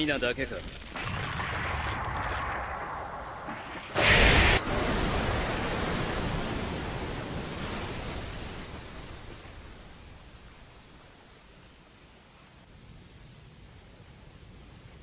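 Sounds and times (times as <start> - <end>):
loud blast: 1.0 - 7.4
hissing rush: 1.0 - 10.6.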